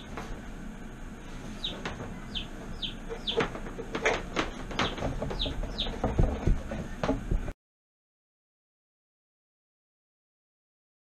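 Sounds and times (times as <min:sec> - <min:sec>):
cable rubbing and knocking on wood: 0:01.6 - 0:07.5.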